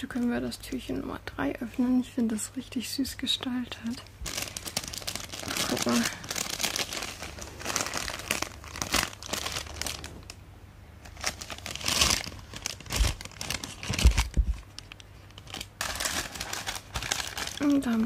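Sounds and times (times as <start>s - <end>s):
paper bag crinkling: 4.2s - 10.4s, 11.0s - 18.0s.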